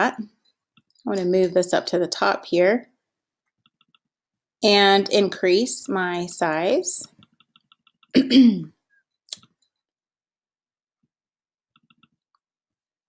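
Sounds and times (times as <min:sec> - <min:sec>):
woman coughing: 0:08.2 - 0:08.8.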